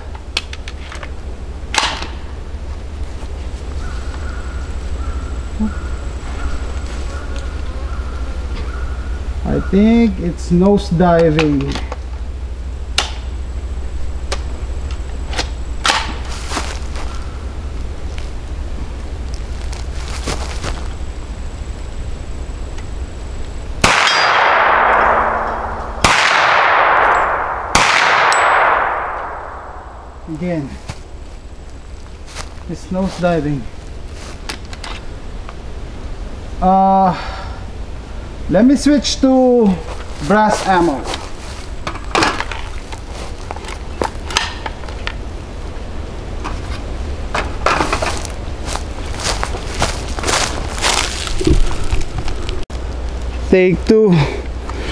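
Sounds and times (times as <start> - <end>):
steady low rumble: 0.0 - 54.9
gunshots with echo: 23.8 - 30.3
clicks and knocks of gun handling: 41.9 - 45.2.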